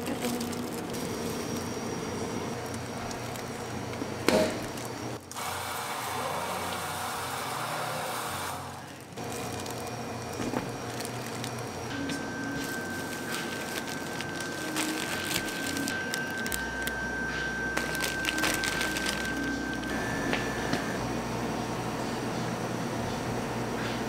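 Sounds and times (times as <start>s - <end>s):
can sealing machine running: 0.0s - 21.9s
can sealing machine clunk: 4.2s - 4.7s.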